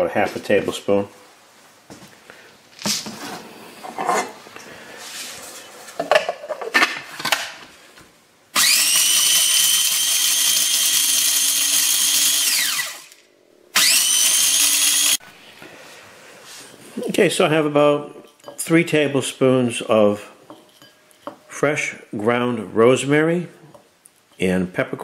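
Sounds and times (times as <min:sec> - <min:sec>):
food processor motor whining: 0:08.6 - 0:13.2, 0:13.8 - 0:15.2.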